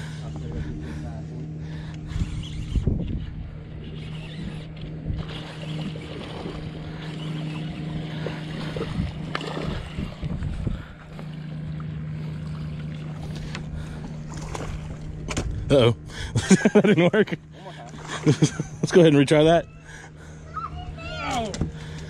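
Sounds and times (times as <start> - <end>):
fishing reel gear whir: 0.0 - 22.0
wind noise on microphone: 2.1 - 5.5, 8.7 - 11.0.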